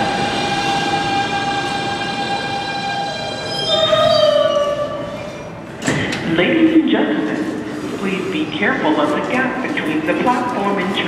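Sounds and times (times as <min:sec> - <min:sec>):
train electric whine: 0:00.0 - 0:06.0
steel wheels rumbling on rail: 0:00.0 - 0:11.0.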